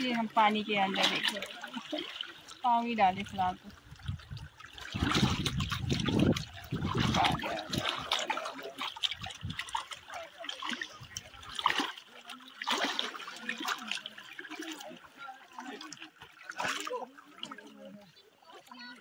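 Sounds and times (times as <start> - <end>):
waterfall trickling and splashing: 0.0 - 19.0
faint voices: 9.6 - 19.0.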